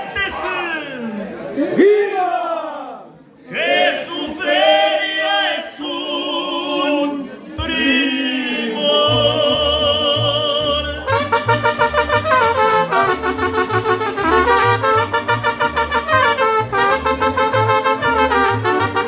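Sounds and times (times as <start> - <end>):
mariachi band playing: 7.6 - 19.0
trumpets playing quick notes: 11.1 - 19.0.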